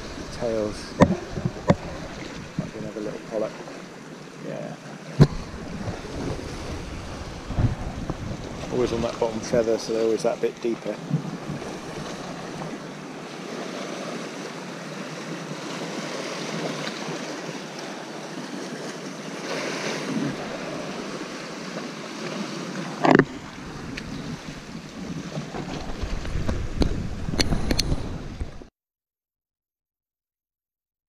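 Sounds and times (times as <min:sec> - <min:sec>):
wind on microphone: 0:00.0 - 0:03.2, 0:05.2 - 0:10.2, 0:10.9 - 0:12.8, 0:20.0 - 0:21.4, 0:22.7 - 0:28.7
sea washing through rocks: 0:00.0 - 0:28.7.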